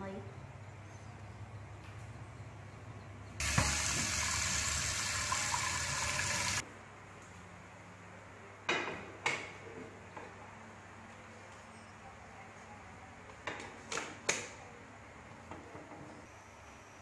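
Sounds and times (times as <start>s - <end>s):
tap water running into a pot: 3.4s - 6.6s.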